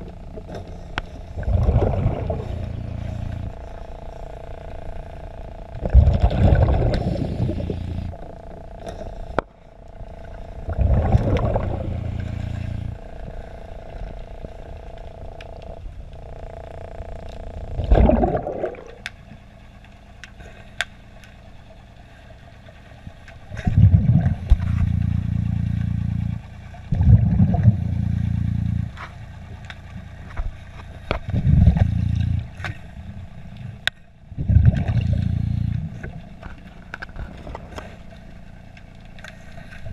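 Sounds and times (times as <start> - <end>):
low rumble: 0.0 - 20.4, 21.1 - 39.9
exhaled bubbles rushing: 1.3 - 3.6, 5.8 - 8.2, 10.6 - 13.0, 17.7 - 19.1, 23.5 - 24.8, 26.9 - 27.9, 34.3 - 36.2.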